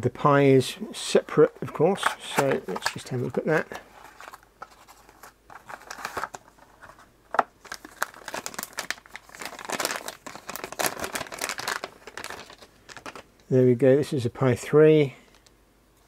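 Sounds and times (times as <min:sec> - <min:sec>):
plastic bag crinkling: 0:02.0 - 0:13.3.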